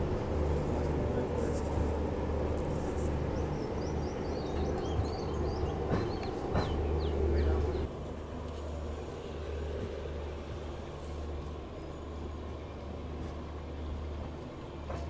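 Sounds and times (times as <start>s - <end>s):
small birds chirping: 2.9s - 7.9s.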